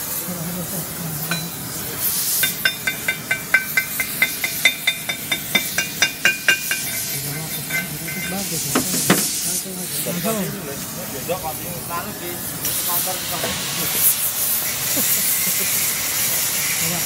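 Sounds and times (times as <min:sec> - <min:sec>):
hammer tapping steel plate: 0:02.4 - 0:09.3.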